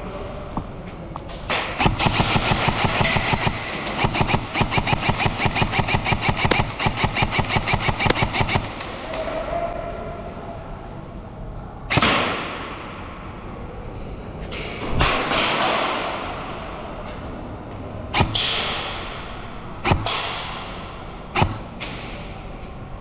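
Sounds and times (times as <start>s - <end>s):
airsoft gun shots: 1.6s - 8.8s, 11.9s - 12.7s, 18.2s - 19.2s, 19.8s - 20.7s, 21.4s - 21.7s.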